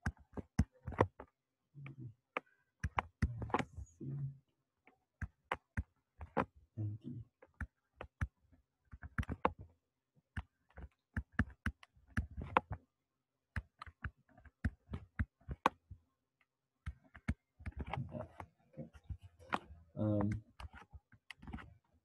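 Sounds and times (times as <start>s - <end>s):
stylus tapping on tablet: 0.0s - 1.3s, 2.8s - 3.8s, 5.2s - 6.5s, 7.4s - 9.6s, 10.4s - 12.8s, 13.5s - 16.0s, 16.8s - 18.4s.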